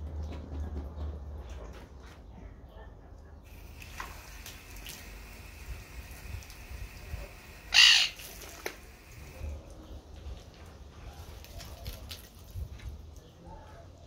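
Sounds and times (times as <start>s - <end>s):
hiss of running hose water: 3.5s - 9.6s
harsh animal call: 7.6s - 8.4s.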